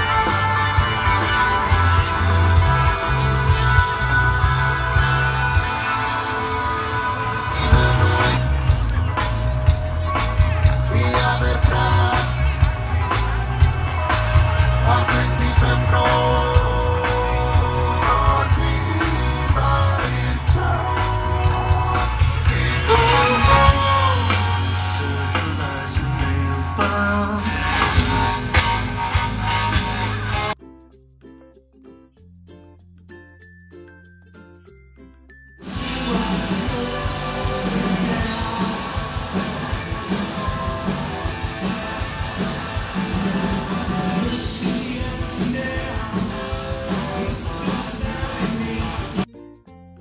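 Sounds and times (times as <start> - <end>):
electric guitar: 0.0 - 30.6, 35.6 - 50.0
heavy bass: 0.0 - 30.6, 35.6 - 49.3
live rock band playing: 0.0 - 30.6, 35.6 - 50.0
steady drum beat: 0.0 - 30.6, 35.6 - 49.3
person singing: 1.6 - 28.8, 35.6 - 41.3, 43.0 - 49.3.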